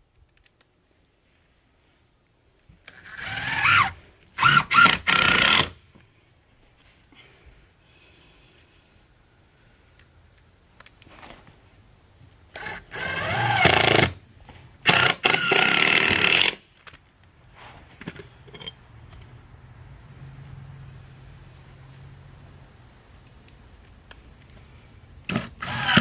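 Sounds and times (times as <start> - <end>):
power drill running: 2.9 - 5.7, 12.5 - 14.2, 14.8 - 16.6, 25.3 - 26.0.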